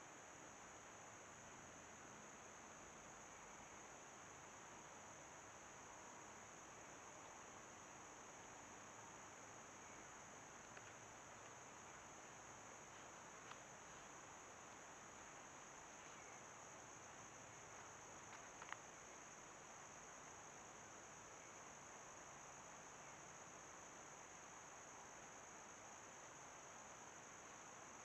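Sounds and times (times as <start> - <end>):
background hiss: 0.0 - 28.0
crickets chirping: 0.0 - 28.0
faint click: 10.6 - 11.6, 18.2 - 18.8.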